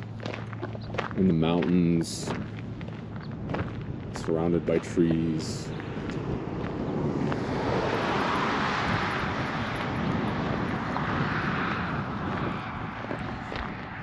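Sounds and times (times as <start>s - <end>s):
passing vehicle rushing: 4.8s - 14.0s.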